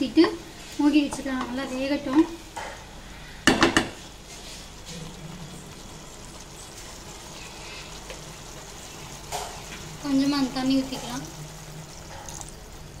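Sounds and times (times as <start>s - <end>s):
spatula knocking against a pan: 3.4s - 4.0s.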